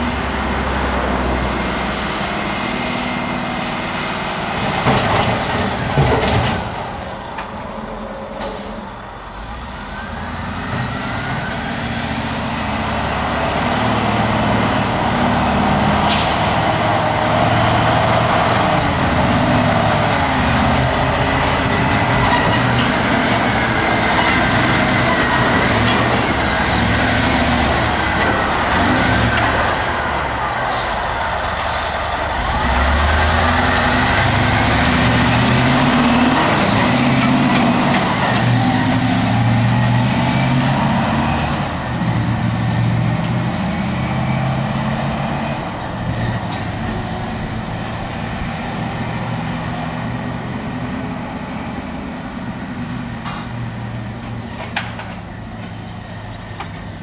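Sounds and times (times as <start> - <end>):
dump truck diesel engines: 0.0 - 57.0.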